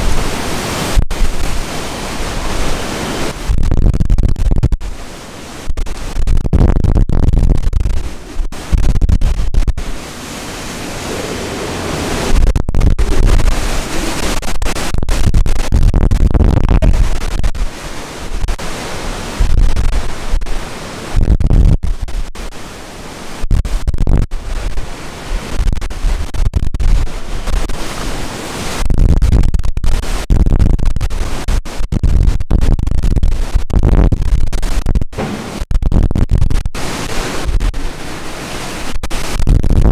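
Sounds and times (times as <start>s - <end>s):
wind buffeting microphone: 0.0s - 22.2s
driving rain: 0.0s - 30.2s, 35.1s - 39.9s
gusting wind: 0.0s - 39.9s.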